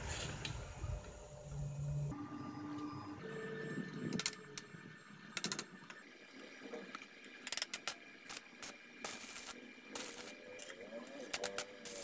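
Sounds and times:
metallic clicks of steel parts: 5.3s - 6.0s, 7.4s - 12.0s.

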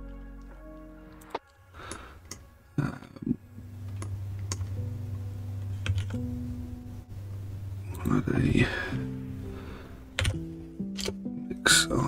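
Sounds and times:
faint low hum: 2.8s - 10.1s
keyboard and mouse clicks: 3.9s - 4.8s, 5.8s - 6.3s, 10.2s - 11.3s.

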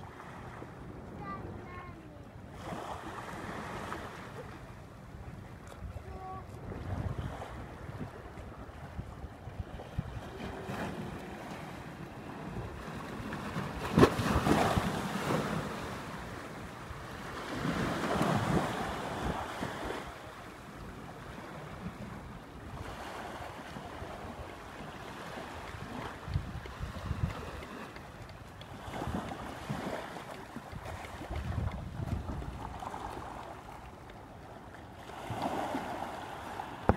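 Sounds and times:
small waves on sandy shore: 0.0s - 36.9s
wind buffeting microphone: 5.2s - 15.7s, 25.5s - 30.0s, 30.6s - 33.6s.

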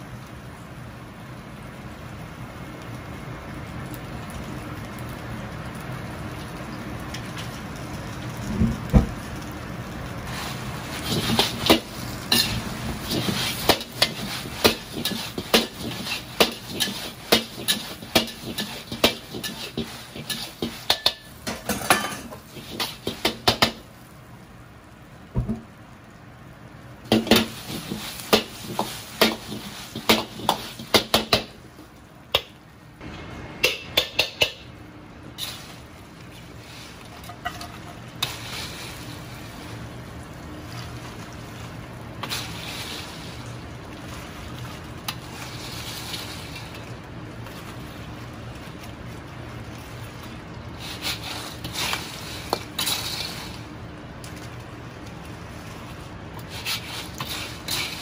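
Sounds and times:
metal ladle clanking in a wok: 11.1s - 23.7s, 37.1s - 38.3s.

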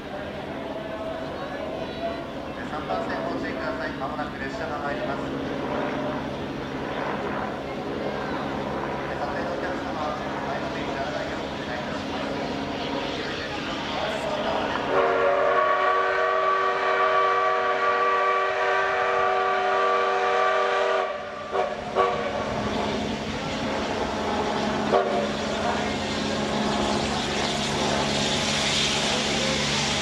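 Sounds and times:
train running noise: 0.0s - 30.0s
steam locomotive whistle: 14.9s - 22.5s, 24.9s - 25.3s.

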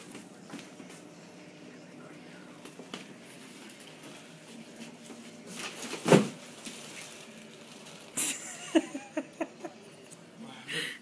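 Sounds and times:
foil balloon bumping and rustling: 5.5s - 7.3s.

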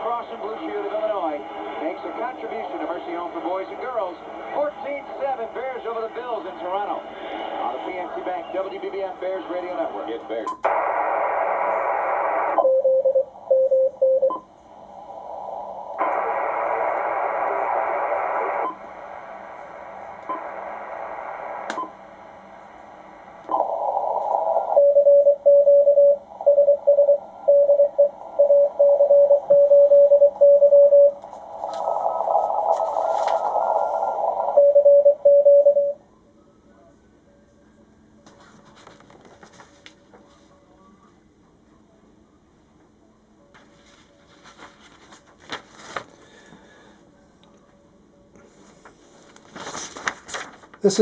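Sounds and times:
radio receiver hiss: 0.0s - 12.6s, 14.4s - 26.6s, 31.2s - 35.0s
morse code tone: 24.6s - 31.2s, 34.4s - 36.0s.

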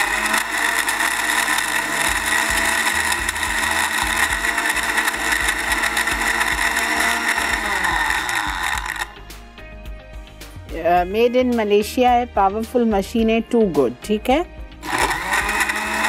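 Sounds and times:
blender crushing ice: 0.0s - 9.2s, 14.8s - 16.0s.

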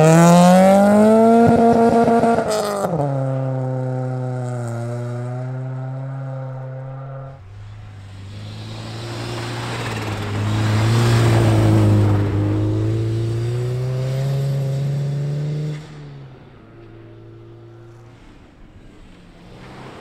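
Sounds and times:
car engine passing at speed: 0.0s - 20.0s
tyres hissing on snow: 7.4s - 12.6s.

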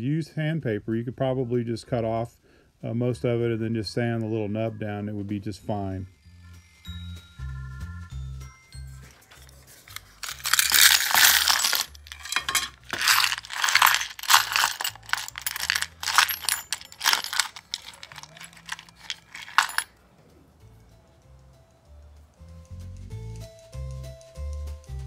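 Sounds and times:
small metal parts clinking in wooden tray: 9.3s - 19.9s.

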